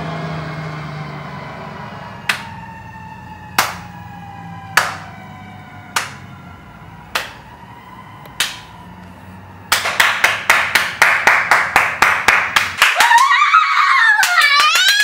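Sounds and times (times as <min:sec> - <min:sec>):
hand claps: 0:02.3 - 0:02.5, 0:03.6 - 0:03.9, 0:04.8 - 0:05.1, 0:06.0 - 0:06.2, 0:07.1 - 0:07.4, 0:08.4 - 0:08.7, 0:09.7 - 0:15.0.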